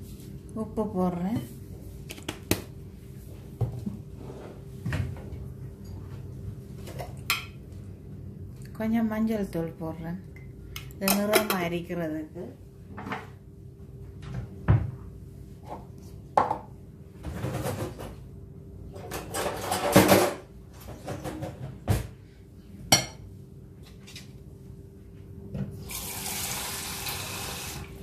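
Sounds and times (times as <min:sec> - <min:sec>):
dishes knocking and clinking: 0:16.4 - 0:18.2, 0:19.0 - 0:22.1
dishes clattering: 0:18.9 - 0:21.8
tap water running: 0:25.8 - 0:28.0.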